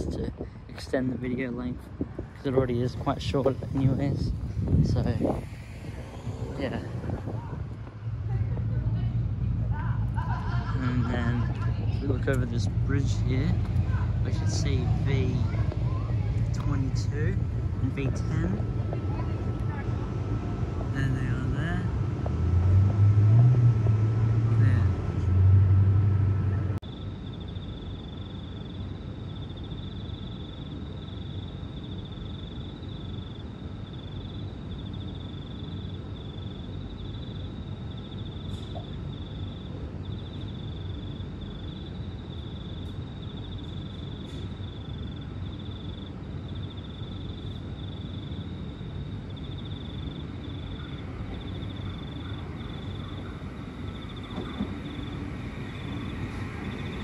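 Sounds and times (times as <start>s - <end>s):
low background rumble: 0.0s - 57.0s
louder low rumble: 1.6s - 26.8s.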